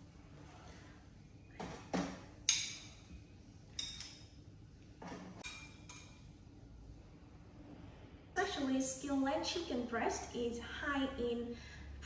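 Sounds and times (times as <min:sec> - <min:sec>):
metal tongs clinking on plate: 0:03.8 - 0:04.3.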